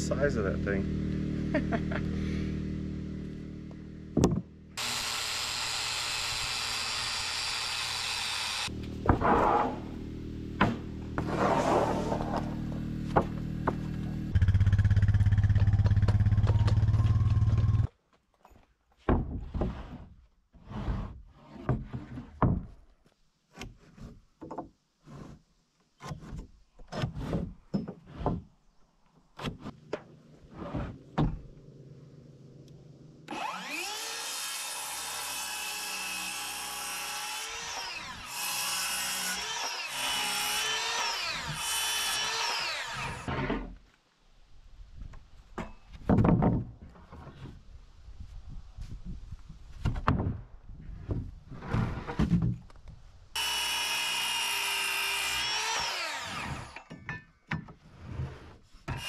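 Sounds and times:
circular saw cutting wood: 4.8s - 17.9s, 33.2s - 43.7s, 53.4s - 56.9s
wooden boards knocking: 46.0s - 46.8s.

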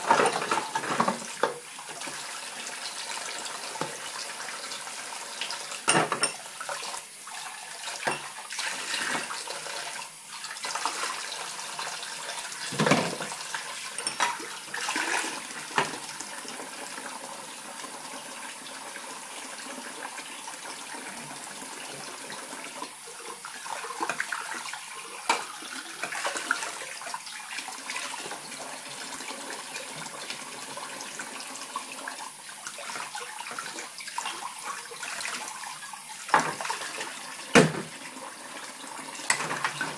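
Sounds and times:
tap water splashing into sink: 0.0s - 2.3s, 3.7s - 4.1s, 7.9s - 9.3s, 12.6s - 16.2s, 23.8s - 27.2s, 36.3s - 38.0s, 39.2s - 39.9s
glassware and crockery clinking: 5.9s - 6.4s, 14.0s - 14.4s.

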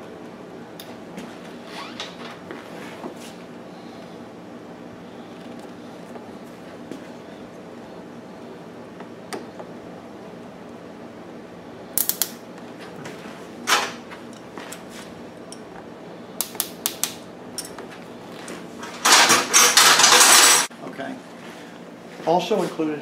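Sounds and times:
tools clicking and tapping: 16.4s - 17.9s
metal parts clattering: 18.8s - 20.7s.

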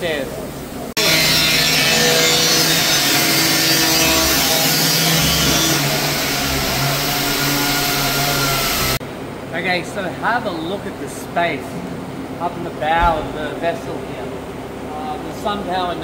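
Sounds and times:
motor hum: 0.3s - 9.0s, 11.8s - 15.1s
power tool hissing: 1.0s - 9.0s.

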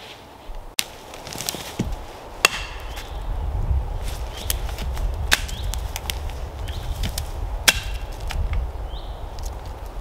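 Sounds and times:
hatchet striking branch: 0.8s - 3.1s, 4.4s - 8.4s
twigs snapping: 0.8s - 3.1s, 4.0s - 8.7s, 9.3s - 10.0s.

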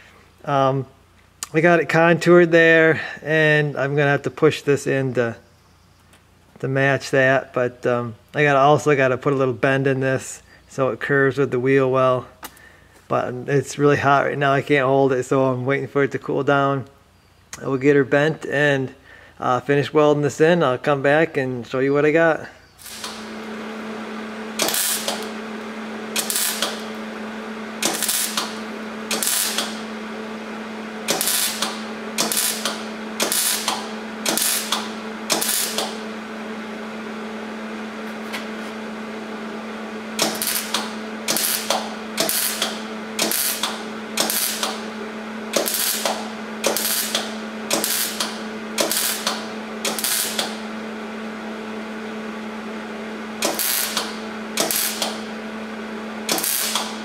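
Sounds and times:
welder steady hum: 0.0s - 57.0s
welding arc crackling: 22.8s - 36.3s, 40.0s - 50.8s, 53.4s - 55.5s, 56.2s - 57.0s.

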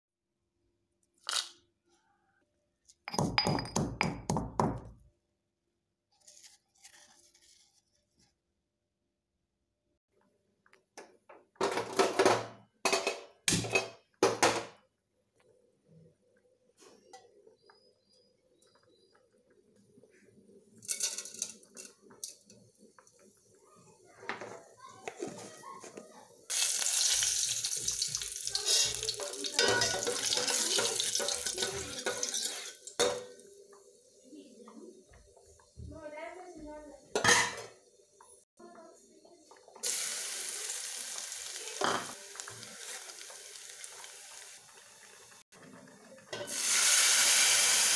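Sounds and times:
pot scraping and clattering: 20.8s - 22.6s, 27.0s - 33.4s
hot oil sizzling and spluttering: 26.5s - 33.5s, 39.8s - 45.4s, 46.4s - 47.9s.

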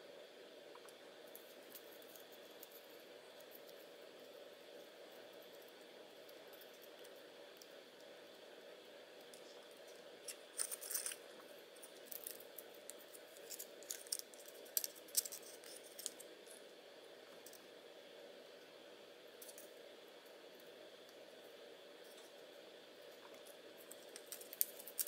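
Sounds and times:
faint room hum: 0.0s - 25.0s
card parts clicking and rustling: 10.3s - 11.2s, 11.8s - 16.2s, 24.0s - 25.0s.

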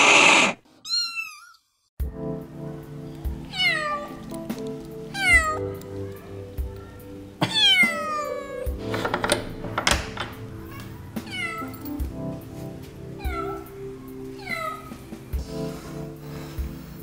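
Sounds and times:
kitten meowing: 0.0s - 1.6s, 5.2s - 5.6s, 7.4s - 8.7s, 11.2s - 11.7s
background music with steady beat: 2.0s - 17.0s.

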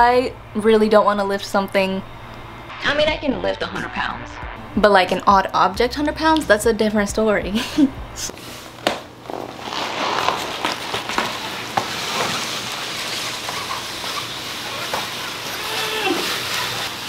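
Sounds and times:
cardboard box scraping on wooden floor: 8.4s - 17.0s.

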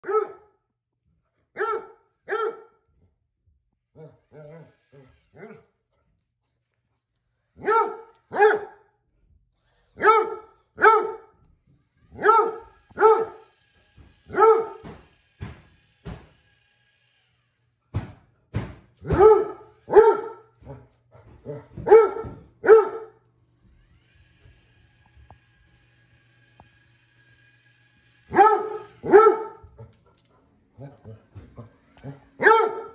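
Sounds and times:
dog barking: 0.0s - 0.5s, 1.5s - 2.8s, 7.6s - 8.9s, 10.0s - 11.3s, 12.2s - 13.4s, 14.3s - 14.8s, 19.0s - 20.8s, 21.4s - 23.2s, 28.3s - 29.7s, 32.0s - 32.9s.

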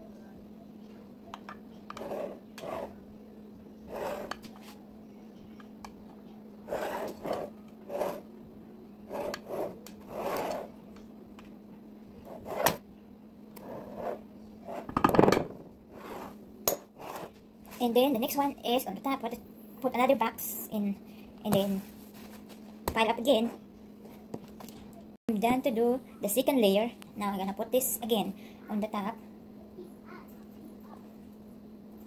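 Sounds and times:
steady low hum: 0.0s - 32.0s.

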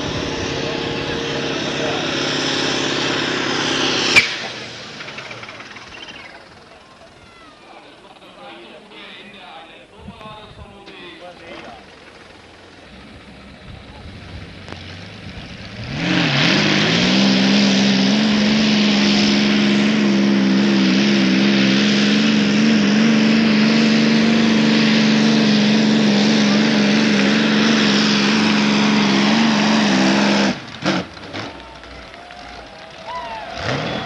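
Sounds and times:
tractor engine at full throttle: 0.0s - 34.0s.

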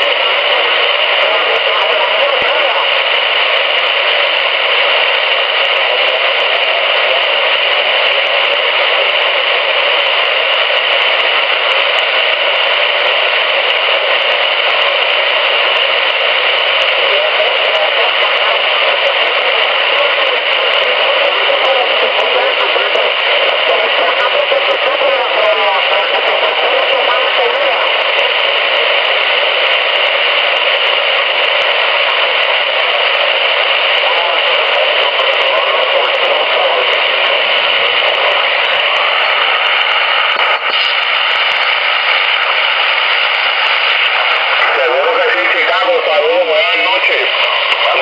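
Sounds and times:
faint warbling radio voice: 0.0s - 3.2s, 16.8s - 29.5s, 32.0s - 42.8s, 44.1s - 48.0s
radio static hiss: 0.0s - 48.0s.

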